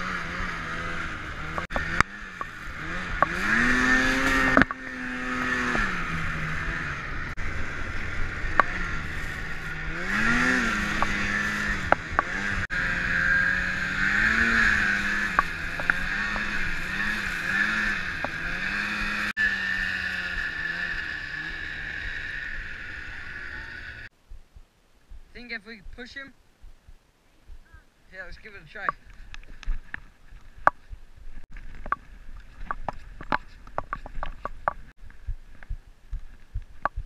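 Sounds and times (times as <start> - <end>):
snowmobile engine running: 0.0 - 24.1.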